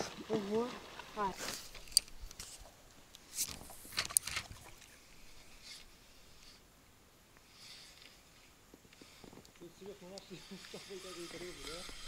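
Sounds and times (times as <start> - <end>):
water splashing around boat: 3.7 - 5.6.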